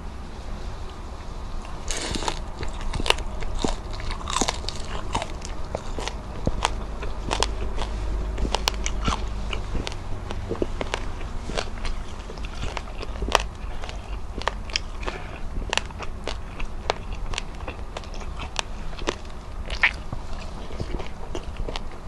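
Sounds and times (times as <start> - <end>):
steady low hum: 0.0 - 22.0
person chewing: 1.6 - 22.0.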